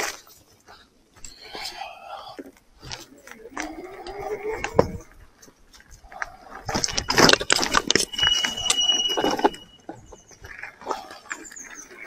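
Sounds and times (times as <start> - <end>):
bike rattling over rough ground: 2.8 - 12.0
high-pitched squeal: 6.7 - 10.2.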